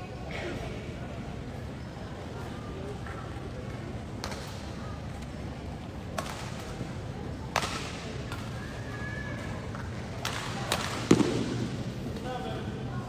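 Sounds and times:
murmur of crowd: 0:00.0 - 0:13.0.

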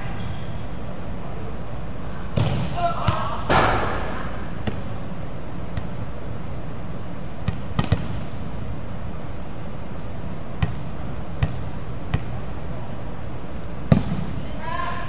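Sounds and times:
volleyball thuds: 0:03.5 - 0:05.8.

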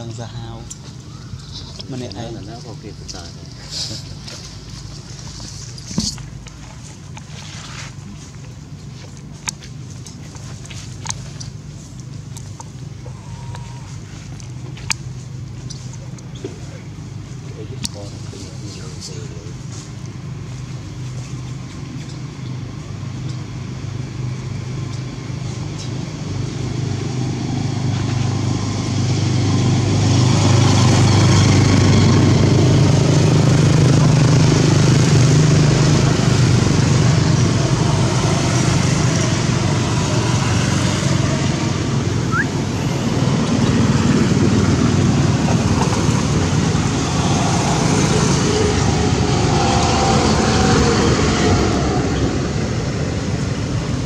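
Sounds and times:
engine humming: 0:00.0 - 0:54.0.

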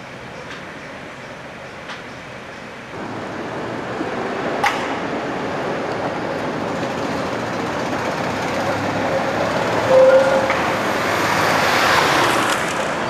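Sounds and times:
street traffic: 0:00.0 - 0:13.0
tram running: 0:00.0 - 0:13.0.

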